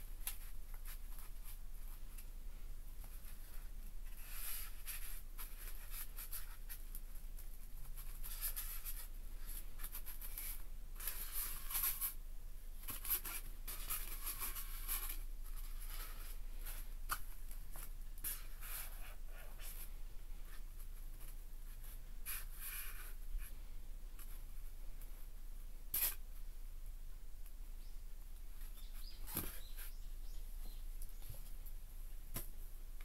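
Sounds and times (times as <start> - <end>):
scratchy rubbing and rustling: 3.0 - 12.2, 12.8 - 23.6.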